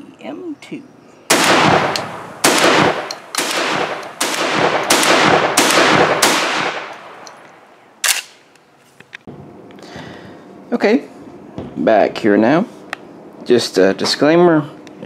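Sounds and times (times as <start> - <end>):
shotgun shots echoing: 1.3 - 7.3.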